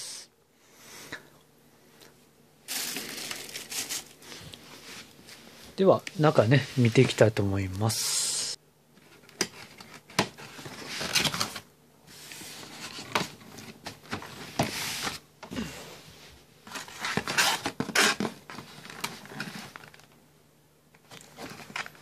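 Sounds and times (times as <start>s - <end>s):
cardboard scraping and rustling: 9.0s - 15.2s, 16.6s - 20.0s.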